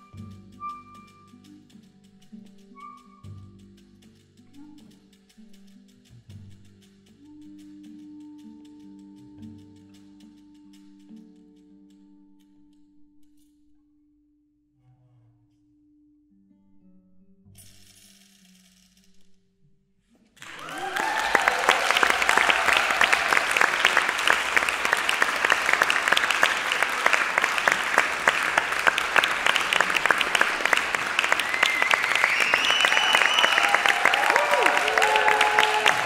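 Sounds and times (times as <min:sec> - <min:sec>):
audience applauding: 0:20.4 - 0:36.0.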